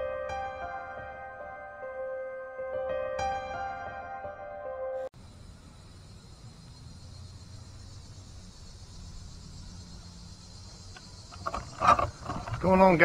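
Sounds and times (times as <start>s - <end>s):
insects droning in trees: 5.1s - 13.0s.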